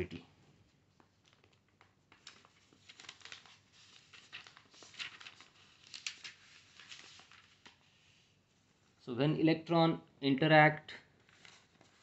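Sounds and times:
faint scratching and rustling: 0.6s - 8.9s.

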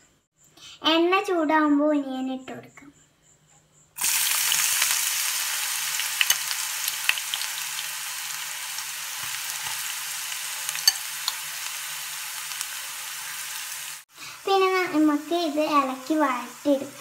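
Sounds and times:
onions sizzling in oil: 4.0s - 17.0s.

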